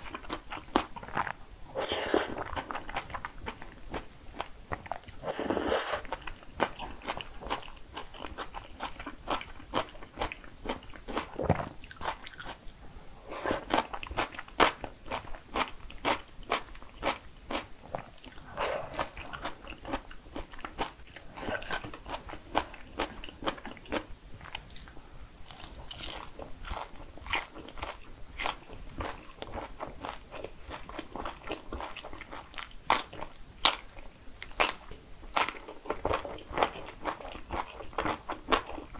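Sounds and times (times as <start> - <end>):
slurping noodles: 1.7 - 2.5, 5.2 - 6.1
wet chewing and crunchy bites: 25.5 - 38.9.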